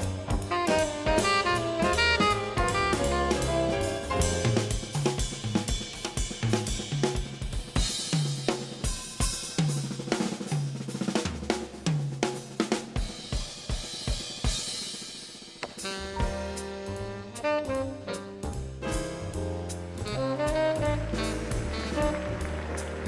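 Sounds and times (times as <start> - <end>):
jazz drum solo: 0.0 - 23.0.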